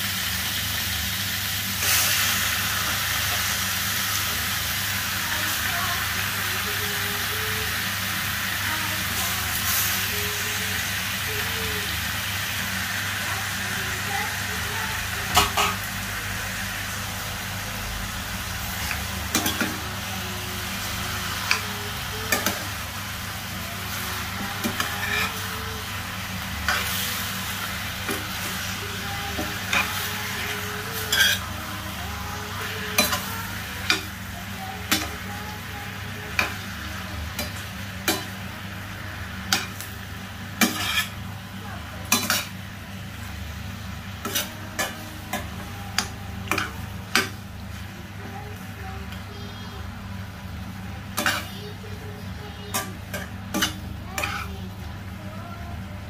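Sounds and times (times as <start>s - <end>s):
light sizzle: 0.0s - 56.0s
steady low hum: 1.6s - 56.0s
spatula scraping metal pan: 40.6s - 41.2s, 52.7s - 54.5s.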